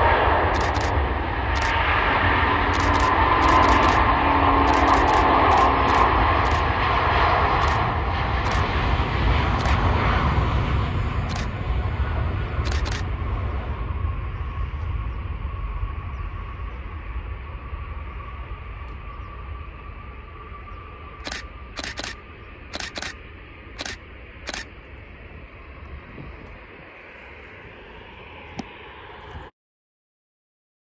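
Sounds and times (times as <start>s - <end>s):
aircraft engine with whine: 0.0s - 29.6s
camera shutter firing: 0.6s - 1.0s, 1.6s - 1.8s, 2.7s - 6.7s, 7.6s - 7.8s, 8.5s - 8.7s, 9.6s - 9.9s, 11.3s - 11.5s, 12.6s - 13.0s, 21.2s - 23.2s, 23.8s - 24.7s.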